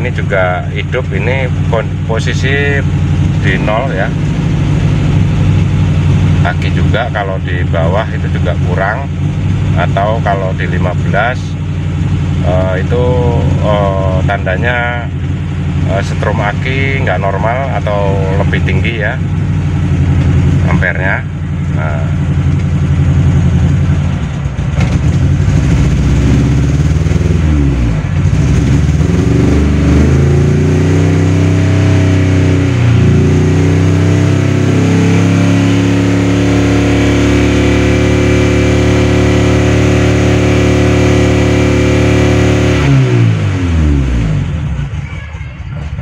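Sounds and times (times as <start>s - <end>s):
car engine revving: 0.0s - 45.1s.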